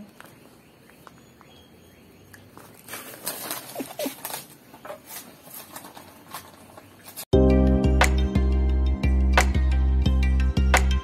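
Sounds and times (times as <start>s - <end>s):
foil snack bag crinkling: 2.6s - 7.2s.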